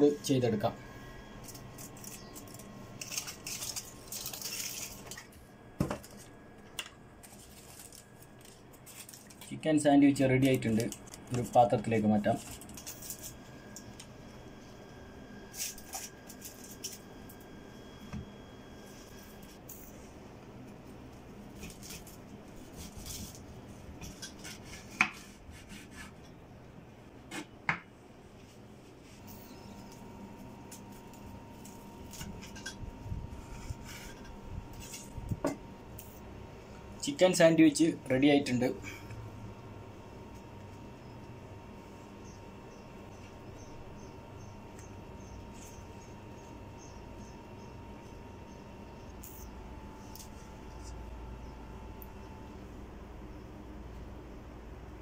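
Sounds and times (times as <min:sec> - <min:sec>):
foil rustling: 0:01.4 - 0:05.4, 0:06.0 - 0:13.6, 0:21.5 - 0:23.9
knife sawing through sandwich: 0:24.4 - 0:26.2.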